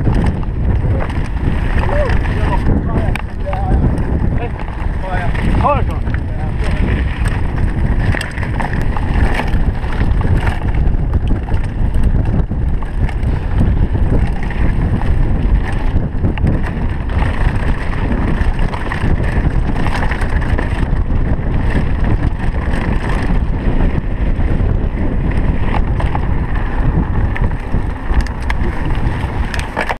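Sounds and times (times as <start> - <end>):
bike rattles and knocks: 0.0 - 29.9
bike tyre rumble: 0.0 - 29.9
wind buffeting microphone: 0.0 - 29.9.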